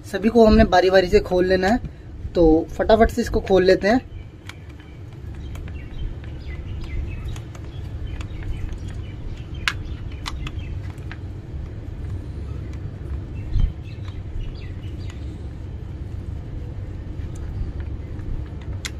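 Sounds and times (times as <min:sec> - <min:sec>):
low background rumble: 0:00.0 - 0:18.9
sharp clicks: 0:04.3 - 0:15.3, 0:17.3 - 0:18.9.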